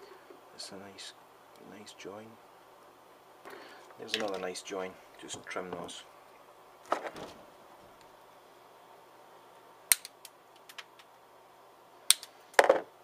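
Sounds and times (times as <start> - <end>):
faint clicks and handling knocks: 4.1 - 4.5.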